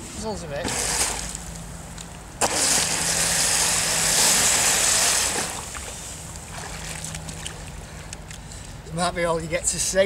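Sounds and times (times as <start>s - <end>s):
jet pump water rush: 0.6s - 1.6s, 2.4s - 8.1s.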